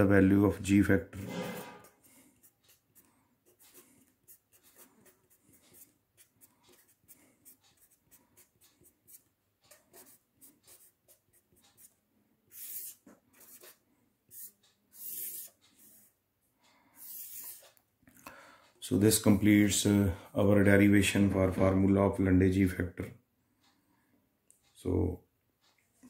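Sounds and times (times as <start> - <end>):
pen scratching on paper: 1.2 - 16.1, 17.0 - 17.7.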